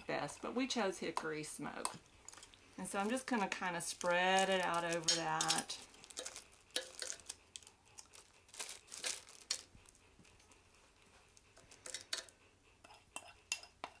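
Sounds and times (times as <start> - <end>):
metal spoon scraping: 1.0 - 9.6, 11.6 - 14.0
plastic liner crinkling: 1.3 - 10.0, 11.6 - 12.3.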